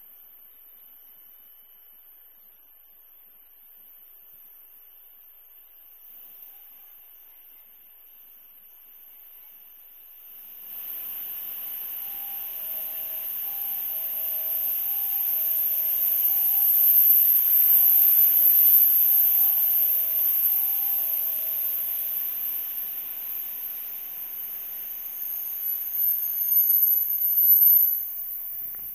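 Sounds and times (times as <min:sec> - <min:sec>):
steady high-pitched hiss: 0:00.0 - 0:28.9
train running noise: 0:10.2 - 0:28.9
two-note electronic warning tone: 0:12.0 - 0:18.6.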